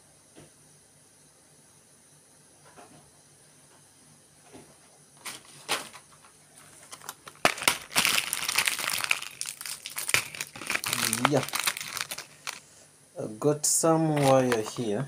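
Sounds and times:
crinkling and rustling handling: 4.6s - 12.7s, 13.8s - 15.0s.

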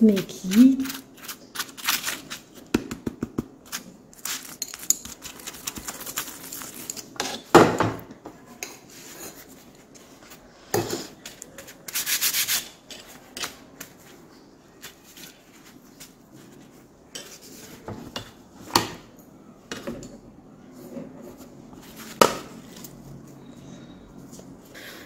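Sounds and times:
spoon scraping flatbread: 0.1s - 2.7s, 3.6s - 7.5s, 8.6s - 14.2s, 14.8s - 18.4s.

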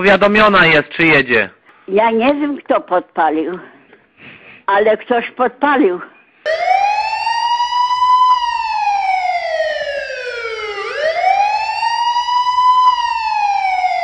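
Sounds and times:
wailing siren: 6.5s - 14.0s.

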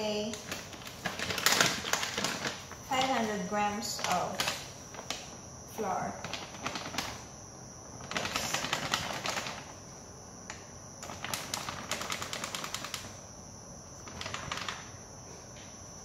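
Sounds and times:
flour bag crinkling: 0.0s - 7.3s, 8.0s - 9.7s, 11.0s - 13.1s, 14.0s - 15.0s.

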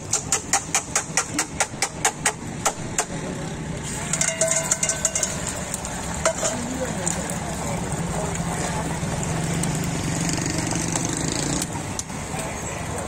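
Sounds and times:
metal utensils clattering on griddle: 0.0s - 3.0s, 3.8s - 7.2s
metallic ring: 4.1s - 5.5s.

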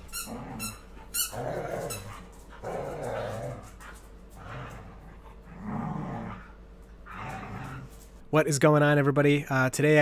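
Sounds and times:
small dogs growling: 0.2s - 8.1s.

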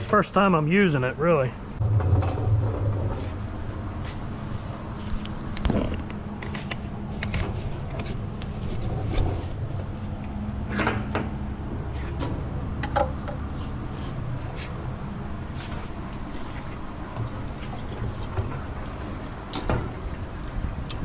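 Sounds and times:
steady low hum: 0.0s - 21.0s
knocks and clunks of hose: 1.8s - 4.2s, 12.0s - 13.5s, 15.6s - 20.2s.

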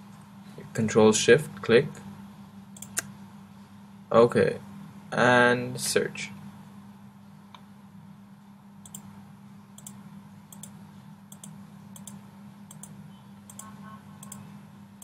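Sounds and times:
steady low hum: 0.0s - 15.0s
computer mouse clicks: 2.8s - 3.1s, 8.8s - 9.1s, 9.8s - 14.4s.

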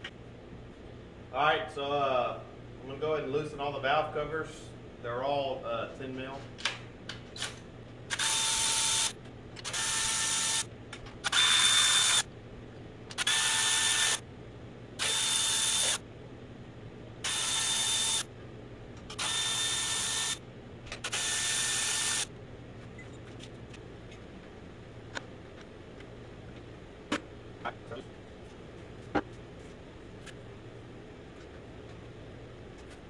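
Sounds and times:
power tool motor whine: 8.1s - 9.1s, 9.7s - 10.7s, 11.3s - 12.2s, 13.2s - 14.2s, 15.0s - 16.0s, 17.3s - 18.2s, 19.2s - 20.4s, 21.0s - 22.3s.

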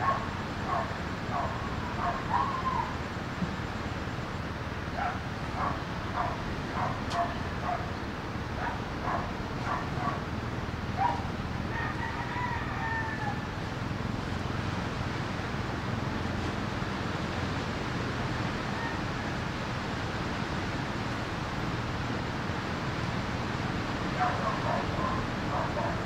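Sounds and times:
long animal call: 0.0s - 3.1s.

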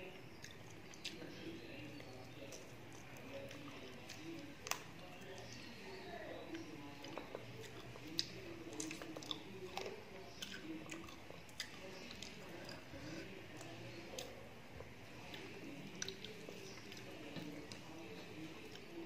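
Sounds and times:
person chewing: 6.5s - 17.9s.

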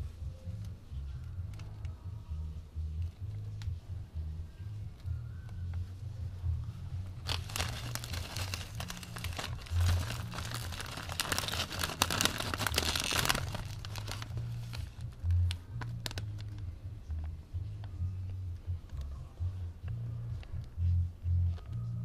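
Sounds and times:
low bass music: 0.0s - 22.0s
chip bag crinkling: 7.2s - 14.9s.

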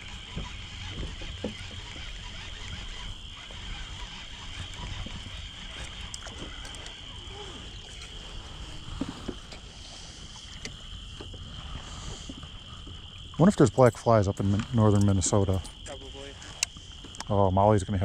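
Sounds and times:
frogs calling: 0.0s - 18.0s
faint ticks: 8.8s - 11.4s, 14.3s - 17.3s.

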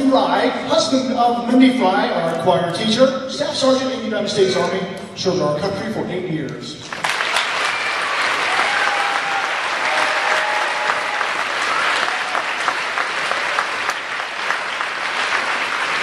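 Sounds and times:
audience applauding: 6.9s - 16.0s.

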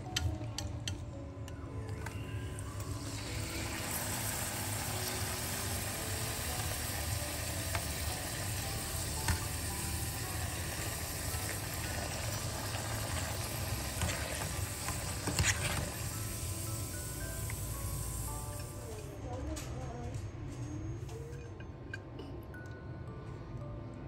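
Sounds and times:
food sizzling in frying pan: 2.8s - 18.9s.

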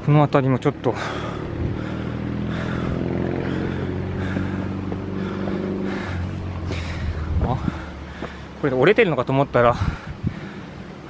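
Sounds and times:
vehicle engine humming: 0.0s - 11.0s
footsteps on stone path: 3.0s - 9.0s.

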